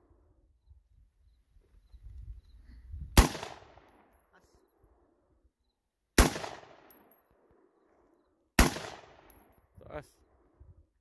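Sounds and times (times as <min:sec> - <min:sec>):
gunshot with echo: 0:03.2 - 0:03.8, 0:06.2 - 0:07.0, 0:08.6 - 0:09.3.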